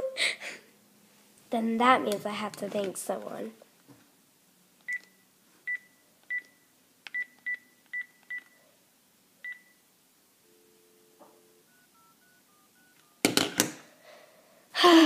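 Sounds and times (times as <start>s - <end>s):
faint stepped dialling tones: 10.4s - 13.2s.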